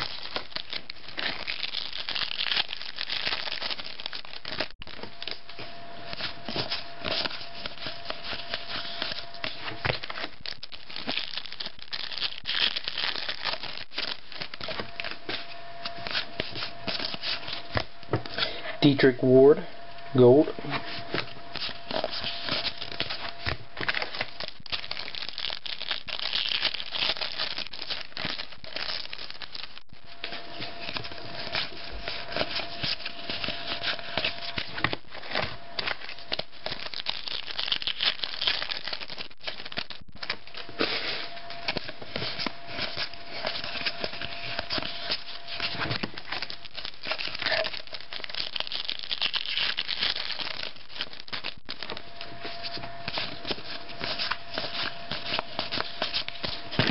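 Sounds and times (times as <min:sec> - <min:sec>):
foil wrappers crinkling and tearing: 0:00.0 - 0:18.5, 0:20.8 - 0:56.9
cards rubbing and sliding: 0:04.4 - 0:10.4, 0:12.1 - 0:17.8, 0:20.7 - 0:25.1, 0:30.2 - 0:36.8, 0:39.0 - 0:47.7, 0:49.9 - 0:56.9.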